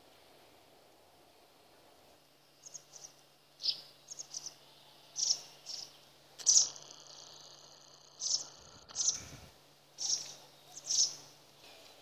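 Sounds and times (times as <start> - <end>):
faint low hum: 0.0 - 12.0
small songbird chirping: 2.4 - 11.6.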